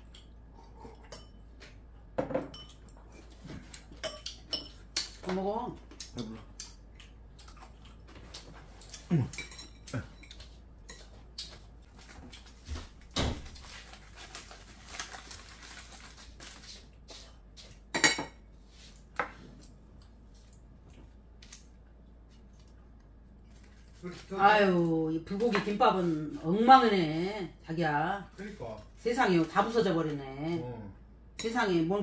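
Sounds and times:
chopsticks and dishes clinking: 0.0s - 5.2s, 8.3s - 11.6s
aluminium foil crinkling: 13.3s - 17.0s.

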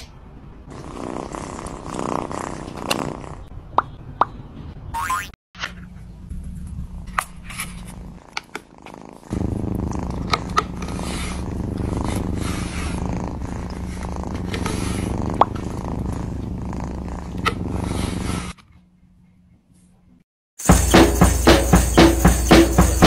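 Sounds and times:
cat purring: 0.7s - 3.5s, 7.8s - 18.6s.

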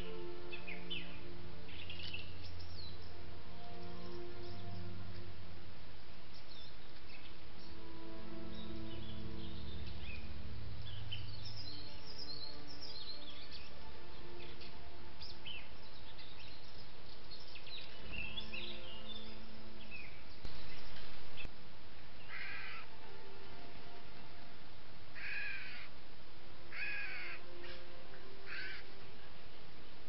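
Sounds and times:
small birds chirping: 0.0s - 21.5s
microphone hiss: 0.0s - 30.0s
harsh crow-like calls: 22.3s - 22.9s, 25.2s - 25.9s, 26.7s - 27.8s, 28.4s - 28.9s.

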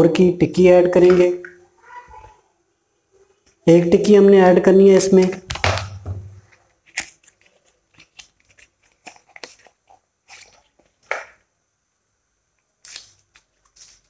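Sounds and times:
foil wrapper crinkling: 5.5s - 11.1s, 12.8s - 14.0s.

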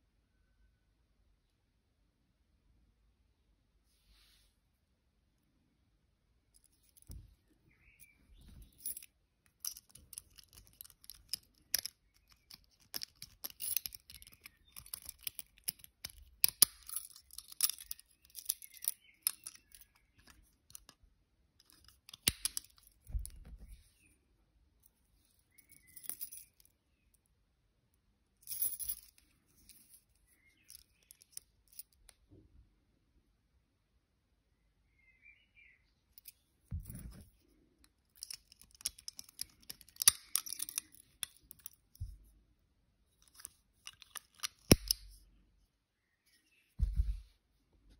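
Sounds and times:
metal picks clinking together: 8.0s - 21.0s, 21.6s - 23.6s, 38.2s - 42.1s, 43.2s - 45.2s
pick scraping in a padlock keyway: 8.0s - 21.0s, 36.2s - 42.2s, 43.2s - 45.2s.

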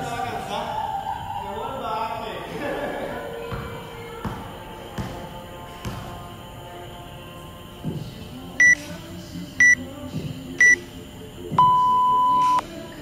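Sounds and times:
long lower timer beep: 11.6s - 12.6s
short high timer beeps: 11.6s - 12.6s.

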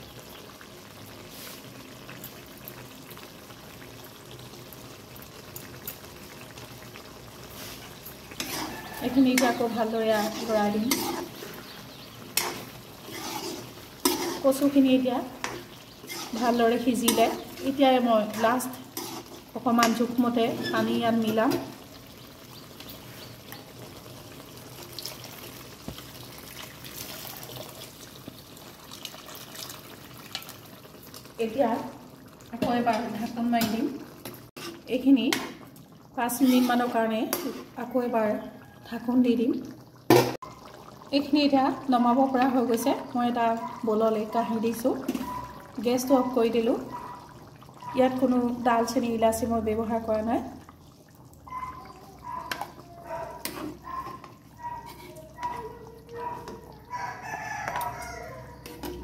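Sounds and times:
water pouring into a wok: 0.0s - 37.1s
curry bubbling with small pops: 0.0s - 37.8s, 38.4s - 59.0s
liquid bubbling: 39.5s - 59.0s.

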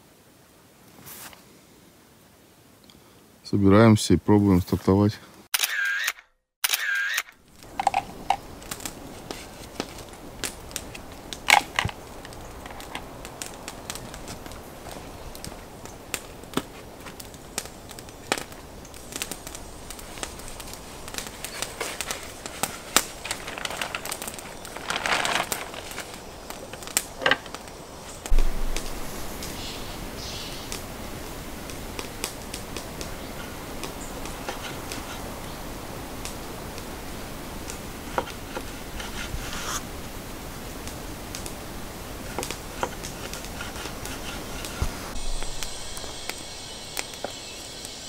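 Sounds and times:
light clicks and crackles: 7.6s - 29.6s, 40.8s - 41.6s, 42.2s - 48.0s
short rustles: 19.3s - 29.4s.

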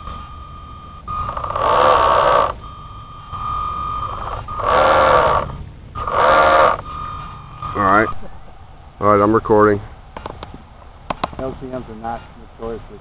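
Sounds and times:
servo winch whirring: 0.0s - 8.3s
steady high tone: 0.0s - 11.0s.

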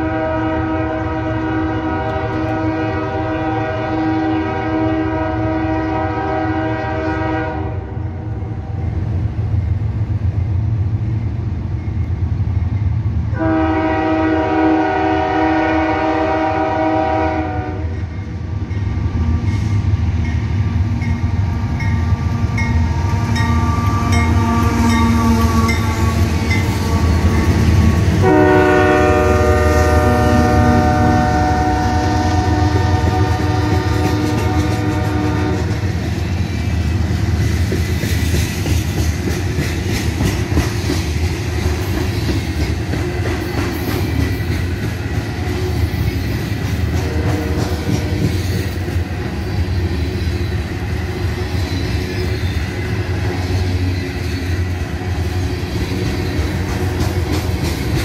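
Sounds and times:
locomotive air horn chords: 0.0s - 8.2s, 13.3s - 18.0s, 23.1s - 35.8s, 47.0s - 48.0s
train wheel clatter: 32.7s - 58.0s.

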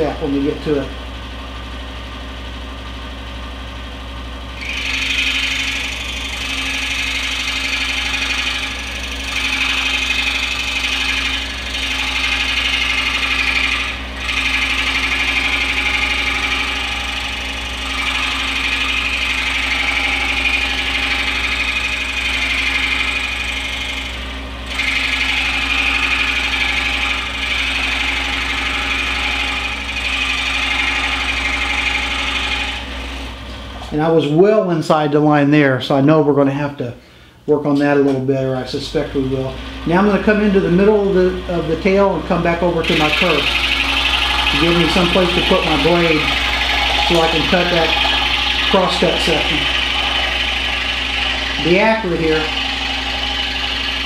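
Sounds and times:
scroll saw motor hum: 4.5s - 34.2s, 38.9s - 54.0s
saw blade rasping in wood: 4.6s - 33.3s, 42.8s - 54.0s.

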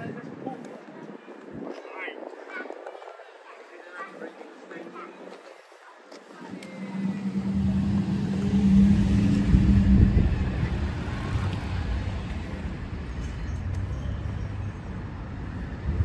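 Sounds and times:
vehicle driving past: 6.4s - 13.2s.

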